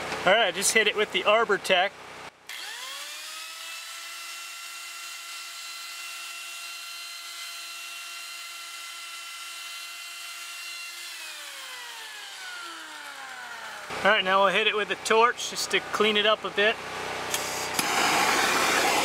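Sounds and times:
power carving tool whining: 2.5 - 13.9.

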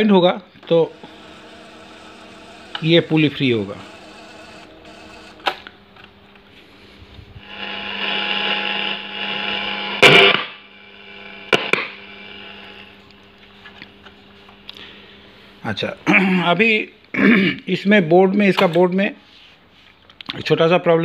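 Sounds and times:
cassette motor hum: 0.5 - 15.2
cassette rewind whir: 0.6 - 10.1.

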